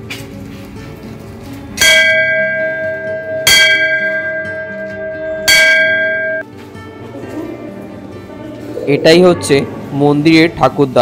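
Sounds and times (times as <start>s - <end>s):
temple bell ringing: 1.8s - 6.5s.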